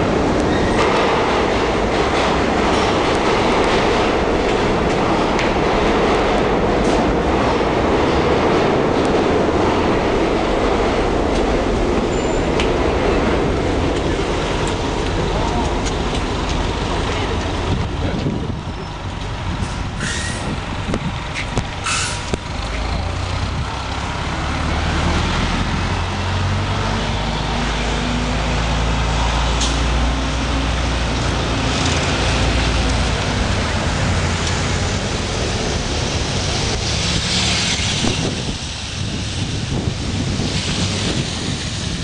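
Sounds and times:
heavy vehicle engine droning: 0:00.0 - 0:42.0
air brakes hissing: 0:19.7 - 0:20.6, 0:21.8 - 0:22.3.

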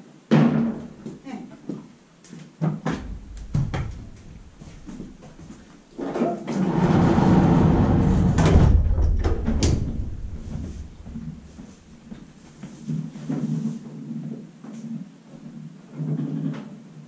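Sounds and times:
sliding door rumbling along track: 0:06.0 - 0:12.1
sharp door clicks: 0:08.2 - 0:10.6.

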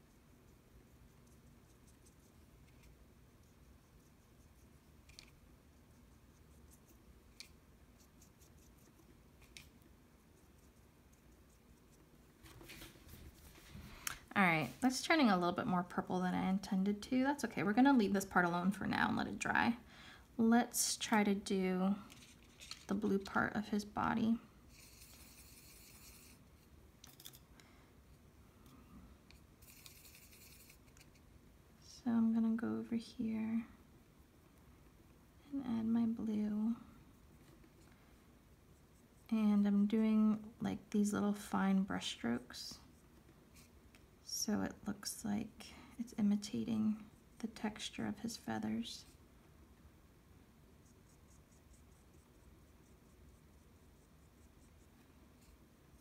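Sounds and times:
paintbrush scrubbing in palette: 0:24.7 - 0:26.7, 0:29.3 - 0:31.3.

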